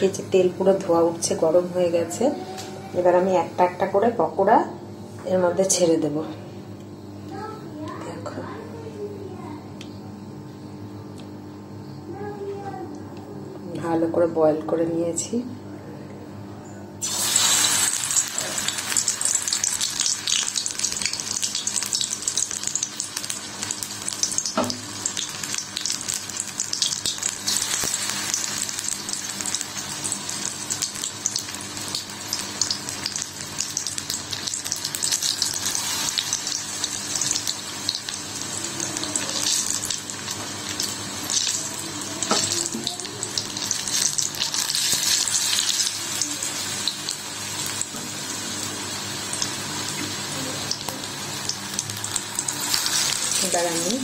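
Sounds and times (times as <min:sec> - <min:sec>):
food deep-frying in oil: 0:17.0 - 0:54.0.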